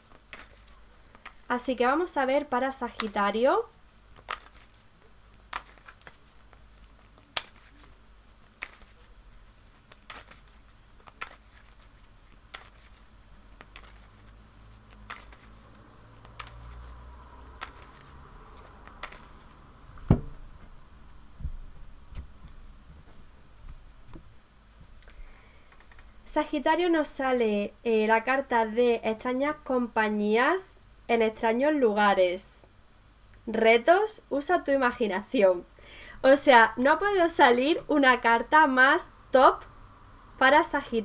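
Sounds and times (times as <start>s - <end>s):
cards scraping while shuffled: 0.0s - 1.8s, 2.8s - 19.7s
sharp card taps: 5.5s - 7.9s, 8.5s - 9.0s, 12.5s - 13.0s, 13.6s - 14.2s, 14.9s - 16.7s, 17.4s - 20.4s
loud knock: 20.1s - 20.4s.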